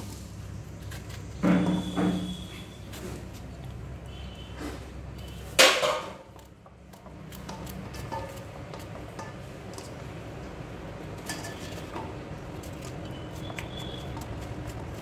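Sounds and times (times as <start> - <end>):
knife cutting gourd: 11.2 - 15.0.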